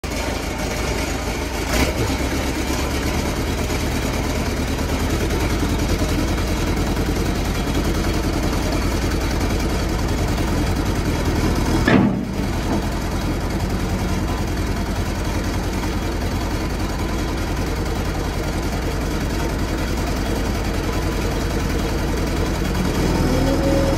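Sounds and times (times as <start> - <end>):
diesel engine idling: 0.0 - 23.9
single knock: 11.9 - 12.8.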